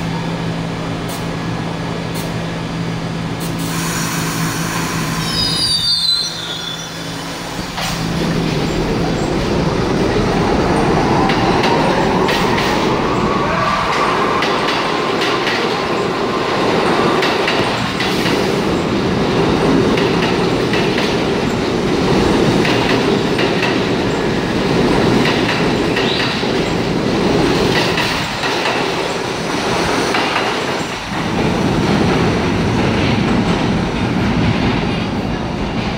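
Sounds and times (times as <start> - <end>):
wheels clattering on rails: 7.7 - 35.9.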